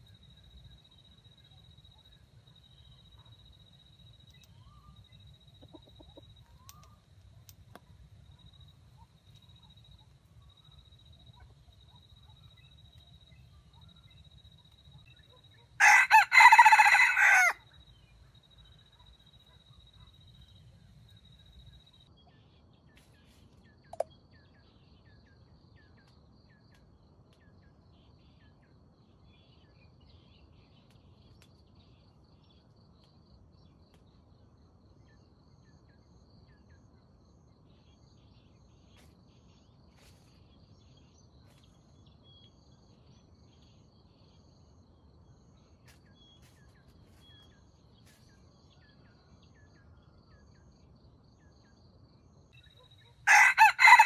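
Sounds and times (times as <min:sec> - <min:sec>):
small bird chirps: 0:00.0 - 0:15.8.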